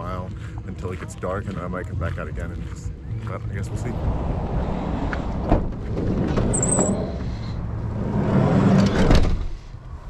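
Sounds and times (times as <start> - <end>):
sliding door rolling open: 3.9 - 9.6
sliding door clattering shut: 4.9 - 7.0, 8.5 - 9.6
door high squeal: 6.4 - 7.2.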